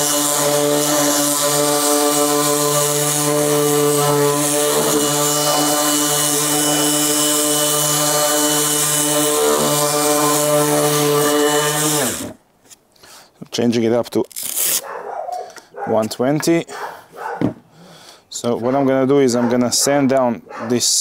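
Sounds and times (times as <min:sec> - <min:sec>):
orbital sander whining: 0:00.0 - 0:12.4.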